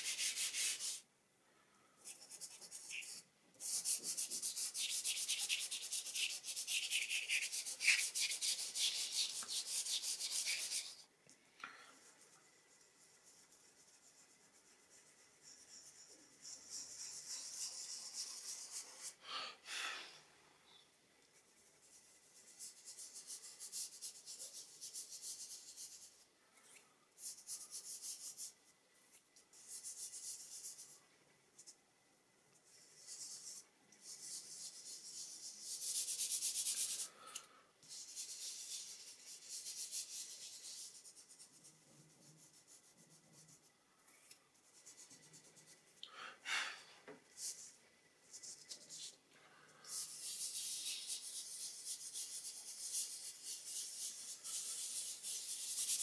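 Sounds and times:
hand rubbing pastel on paper: 0.0s - 1.1s, 2.0s - 11.1s, 12.0s - 19.2s, 21.4s - 26.3s, 27.1s - 31.0s, 32.6s - 37.2s, 37.8s - 43.8s, 44.5s - 46.0s, 47.3s - 49.2s, 49.8s - 56.0s.

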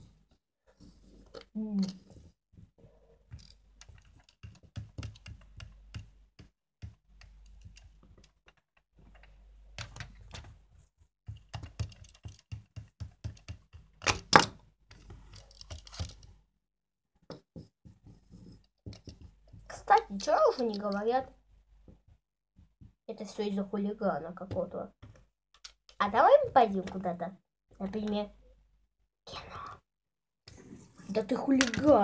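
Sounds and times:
plastic toys clicking and tapping: 3.3s - 10.6s, 11.3s - 16.3s, 18.7s - 21.3s, 24.5s - 27.1s, 31.4s - 32.0s.

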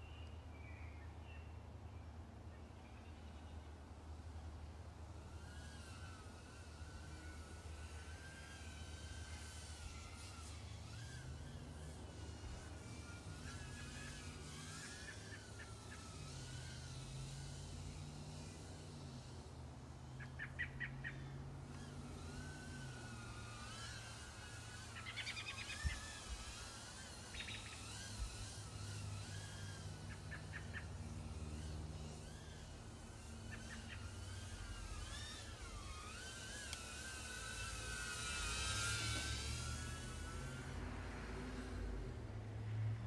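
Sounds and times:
drone motors whining: 3.8s - 43.0s
birds chirping: 19.9s - 22.5s, 23.2s - 36.6s.

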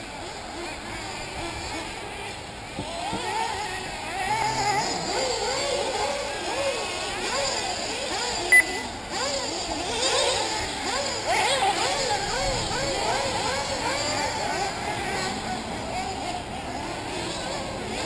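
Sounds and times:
rc buggy engines whining: 0.0s - 18.0s
short loud beep: 8.5s - 9.0s.

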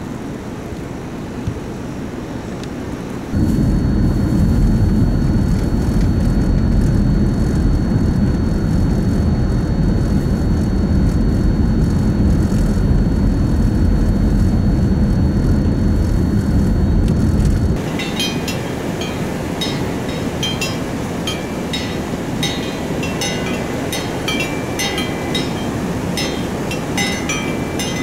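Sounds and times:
faint high-pitched whine: 17.7s - 28.0s.

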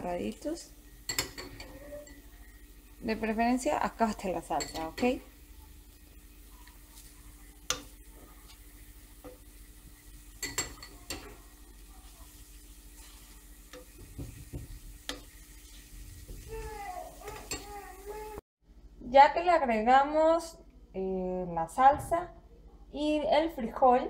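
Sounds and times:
faint sizzle in frying pan: 0.0s - 18.4s
spoon clicking against pan: 7.6s - 7.9s.

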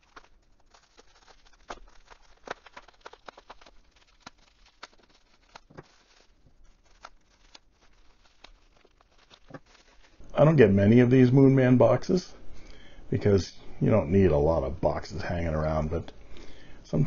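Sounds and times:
bubble wrap crackles and clicks: 0.0s - 10.7s
bubble wrap crinkling: 0.0s - 11.2s.

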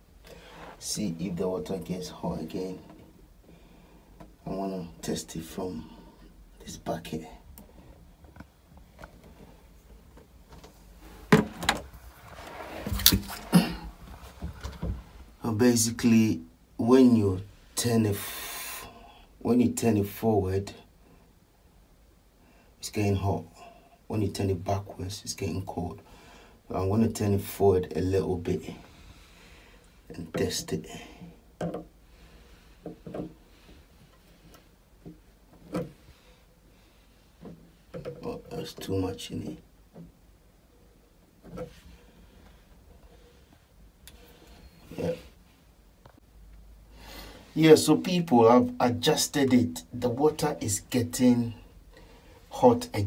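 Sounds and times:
rustling: 7.7s - 15.4s
handling knocks and bumps: 11.3s - 11.9s.

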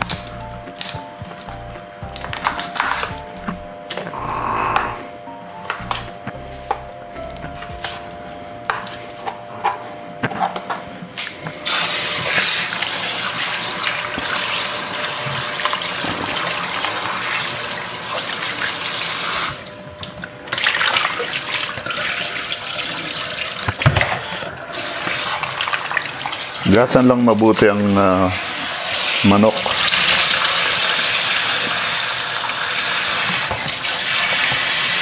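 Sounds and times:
tap running into a sink: 33.1s - 34.7s.

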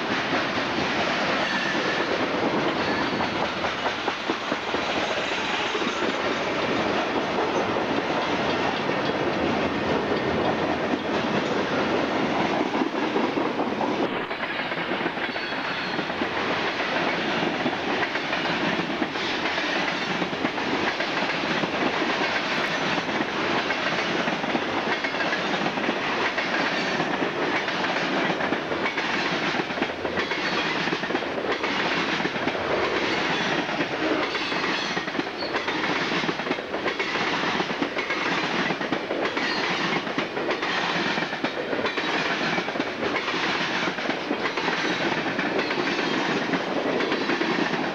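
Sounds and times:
steel wheels rolling on rail: 0.0s - 47.9s
wheels clacking over rail joints: 0.0s - 47.9s.

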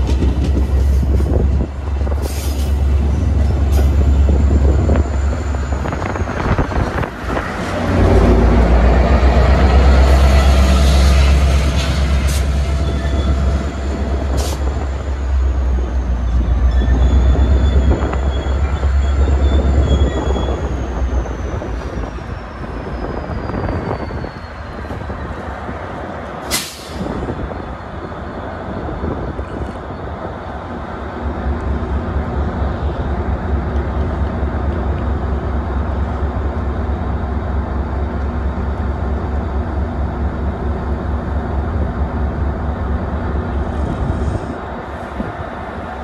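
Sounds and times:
diesel locomotive engine rumble: 0.0s - 46.0s
air brake hiss: 2.2s - 2.8s, 26.4s - 27.2s.

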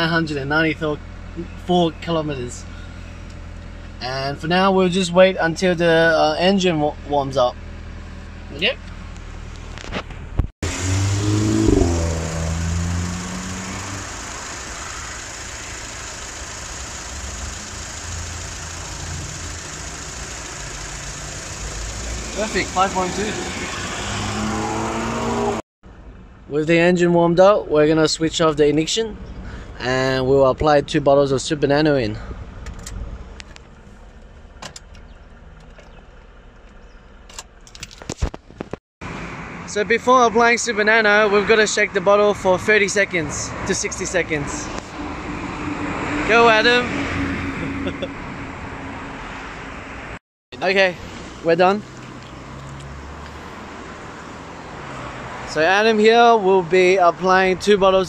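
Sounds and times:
car engine humming: 0.0s - 6.0s, 6.6s - 26.4s, 31.3s - 37.8s, 39.0s - 58.0s
car engine idling: 10.6s - 23.8s.

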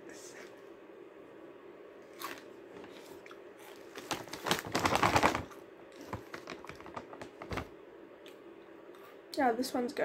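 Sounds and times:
plastic snack bag crinkling: 3.7s - 7.7s.

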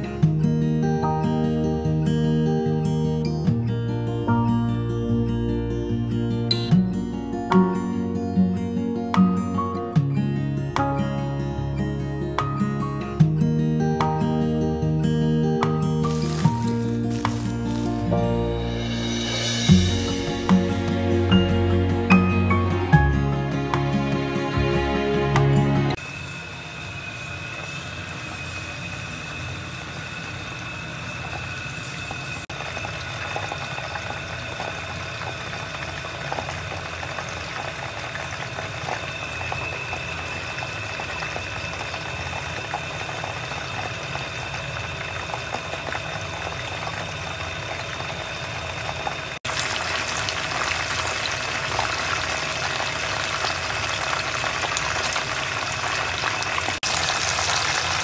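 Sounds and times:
chicken deep-frying in oil: 16.0s - 20.5s, 26.0s - 58.0s
faint high whine: 26.0s - 35.6s, 38.6s - 49.2s.

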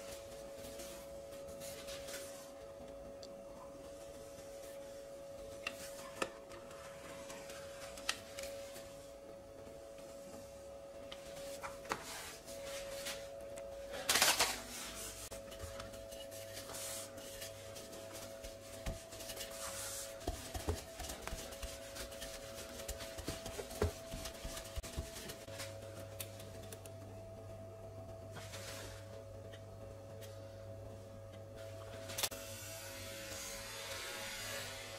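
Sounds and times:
knife rasping on dough: 15.0s - 25.4s.

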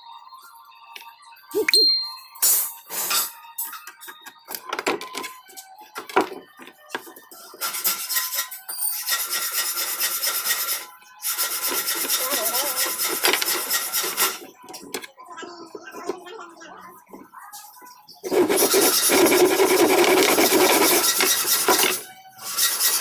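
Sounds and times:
rasping strokes against wood: 9.2s - 14.4s, 18.2s - 23.0s.

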